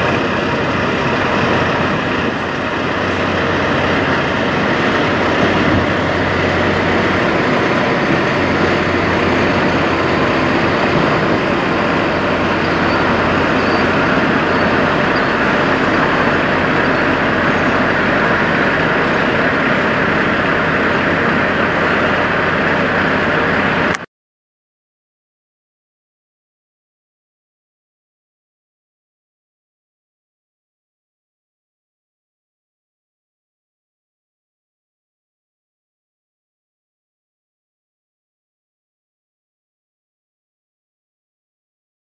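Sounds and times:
truck diesel engine running: 0.0s - 24.1s.

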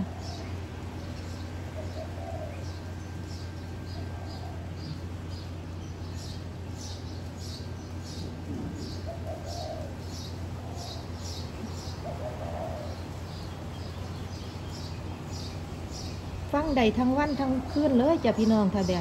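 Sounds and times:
dove cooing softly: 0.0s - 5.5s, 8.0s - 13.5s
steady low hum: 0.0s - 19.0s.

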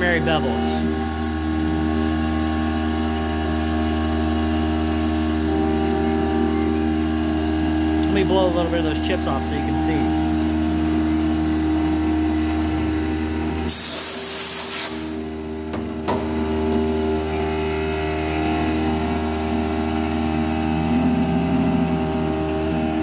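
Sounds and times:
mill spindle running: 0.0s - 23.0s
compressed air blast hissing: 13.6s - 15.2s.

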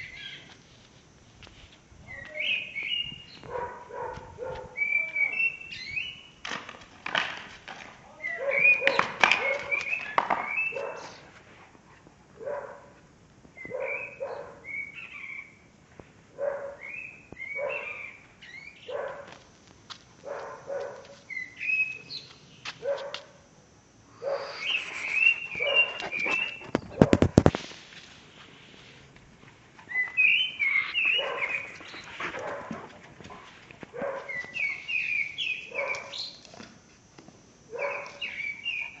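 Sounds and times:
dog barking: 3.4s - 4.8s, 8.3s - 9.8s, 10.7s - 11.3s, 12.4s - 13.0s, 13.7s - 14.7s, 16.4s - 16.9s, 17.6s - 18.2s, 18.9s - 19.4s, 20.2s - 21.2s, 22.8s - 23.3s, 24.2s - 24.5s, 25.6s - 26.1s, 31.1s - 31.6s, 32.3s - 32.8s, 33.9s - 34.4s, 35.7s - 36.2s, 37.7s - 38.3s.

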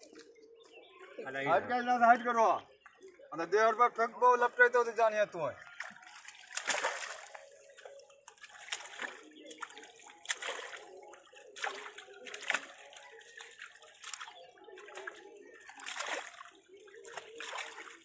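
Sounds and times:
shallow water splashing: 5.7s - 18.0s.

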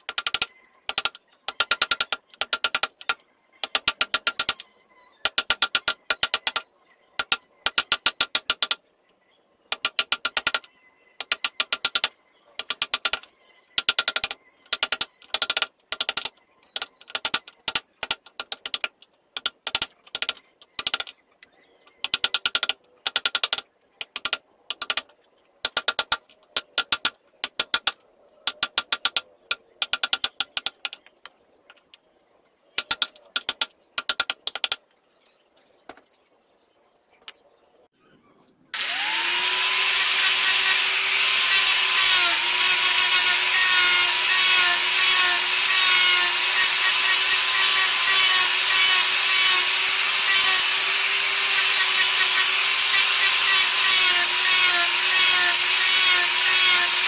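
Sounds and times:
hand drill clicking into wood: 0.1s - 4.6s, 5.3s - 6.6s, 9.7s - 10.6s, 11.2s - 13.2s, 13.8s - 21.1s, 22.0s - 25.0s, 38.8s - 57.0s.

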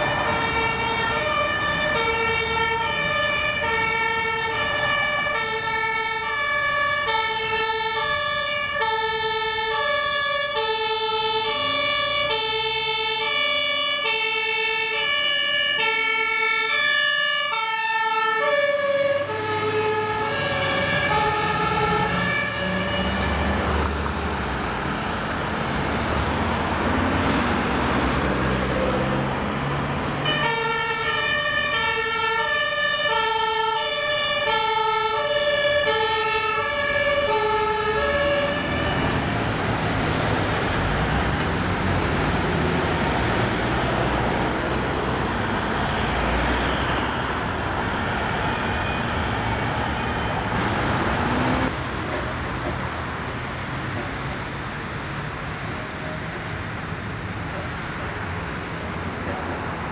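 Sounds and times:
two-tone fire engine siren: 0.0s - 52.2s
heavy diesel engine passing: 0.0s - 59.9s.

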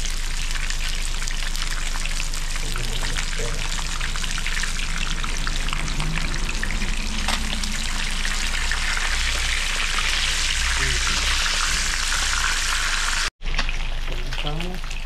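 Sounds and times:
fish frying in hot oil: 0.0s - 15.0s.

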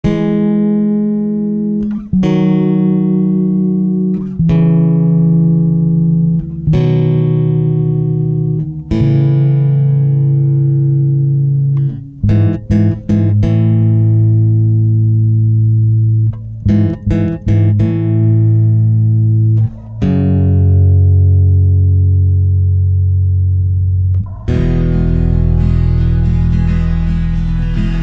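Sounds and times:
slow sustained music chords: 24.1s - 28.0s.

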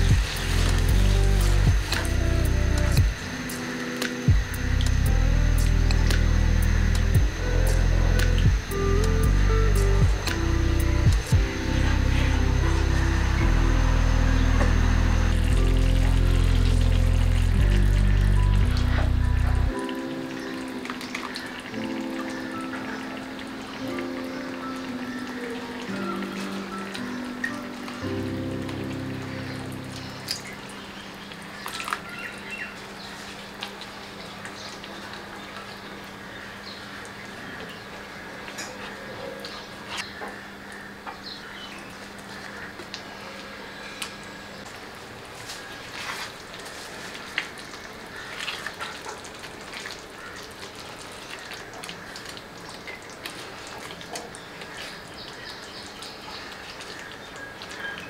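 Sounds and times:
music track: 0.0s - 31.0s
gravy bubbling in a pan: 45.3s - 58.0s.

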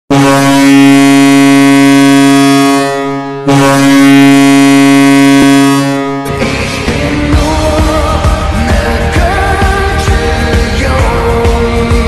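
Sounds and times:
goal horn blasts: 0.1s - 6.4s.

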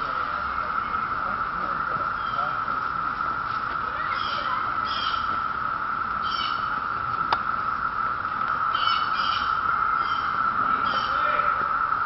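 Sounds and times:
cicadas droning: 0.0s - 12.0s.

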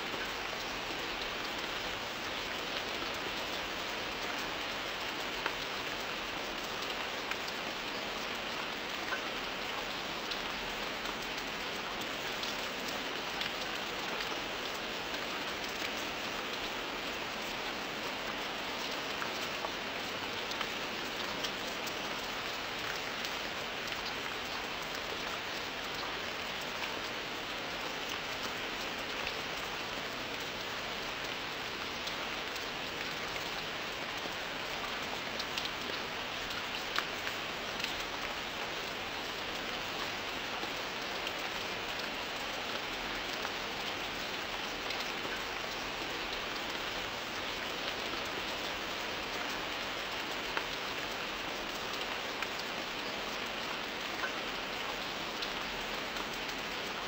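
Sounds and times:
steady rain falling: 0.0s - 57.0s.

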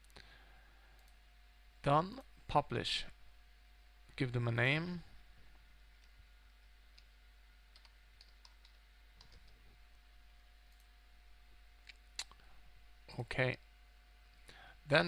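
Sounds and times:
faint steady hum: 0.0s - 15.0s
computer keyboard typing: 7.7s - 9.6s.

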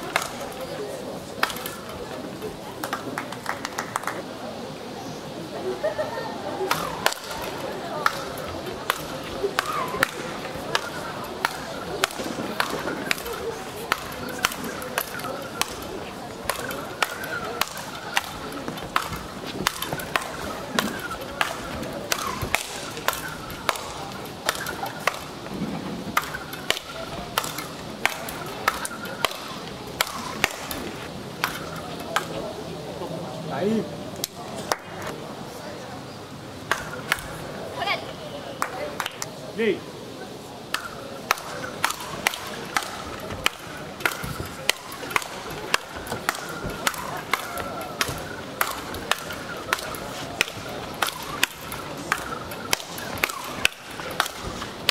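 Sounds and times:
paddles cracking against ball: 0.0s - 0.7s, 1.4s - 2.1s, 6.6s - 32.4s, 36.7s - 37.4s, 40.6s - 54.9s.

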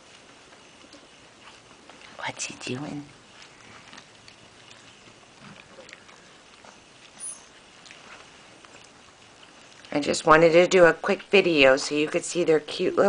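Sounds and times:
puppy squeaking: 7.2s - 7.6s.

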